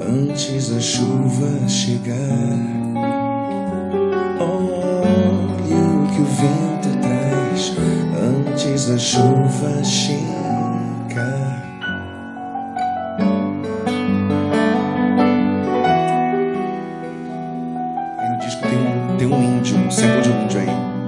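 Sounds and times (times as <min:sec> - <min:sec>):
man singing: 0:00.0 - 0:12.3, 0:18.0 - 0:21.0
pop instrumental accompaniment: 0:00.0 - 0:21.0.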